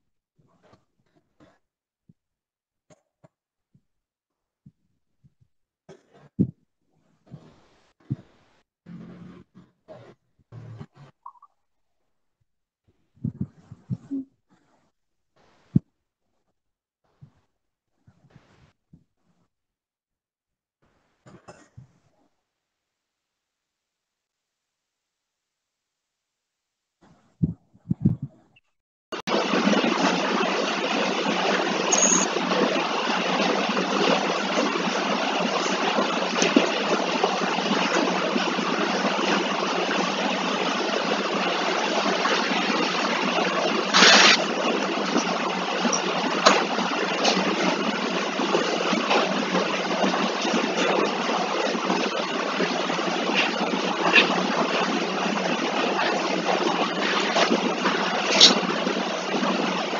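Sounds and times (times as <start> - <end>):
steady hiss on call line: 43.9 - 44.5.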